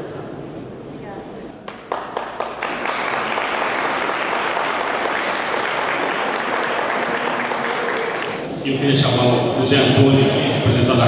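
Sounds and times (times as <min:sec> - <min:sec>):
audience applauding: 0:01.7 - 0:08.6.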